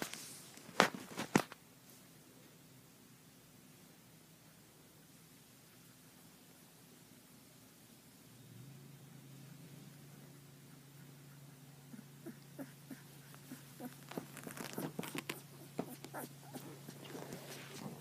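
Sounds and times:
bedding and phone rustling: 0:00.0 - 0:02.1, 0:13.2 - 0:18.0
puppy squeaking: 0:10.8 - 0:17.4.

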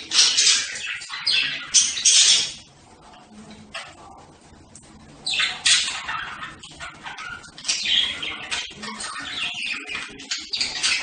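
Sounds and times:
budgerigars chattering: 0:00.0 - 0:02.7, 0:05.2 - 0:11.0.

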